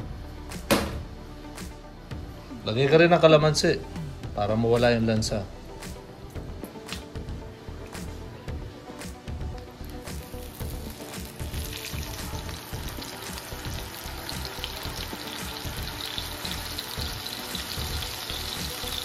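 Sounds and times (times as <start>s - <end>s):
fish steak sizzling in oil: 10.2s - 19.0s.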